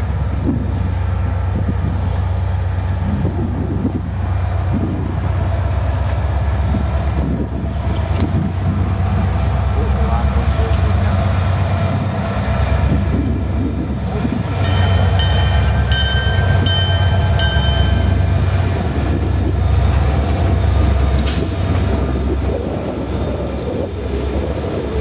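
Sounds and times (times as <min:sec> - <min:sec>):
diesel locomotives rumbling: 0:00.0 - 0:25.0
short high ringing tones: 0:14.6 - 0:18.3.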